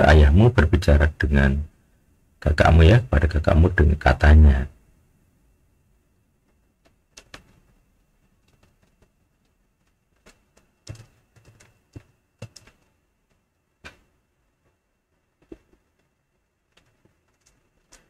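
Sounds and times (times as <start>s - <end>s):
keyboard and mouse clicks: 6.8s - 7.8s, 8.4s - 14.1s.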